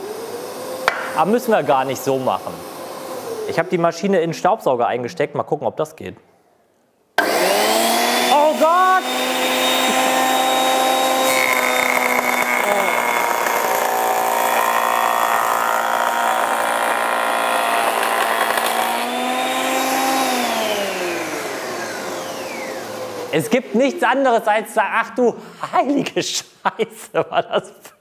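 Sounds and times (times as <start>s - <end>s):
planer whining: 0.0s - 3.8s, 7.2s - 24.4s
shop vacuum running: 0.0s - 4.1s, 7.2s - 24.8s.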